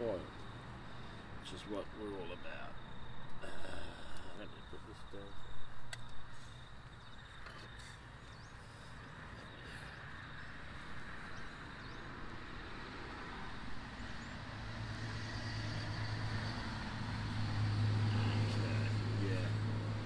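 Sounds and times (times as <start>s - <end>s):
vehicle engine humming: 13.5s - 20.0s.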